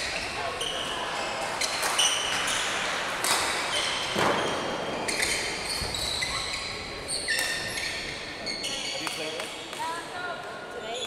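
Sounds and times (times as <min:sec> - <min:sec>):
shoes squeaking on floor: 0:00.0 - 0:02.8, 0:03.7 - 0:09.7
racket hitting shuttlecock: 0:03.2 - 0:03.7.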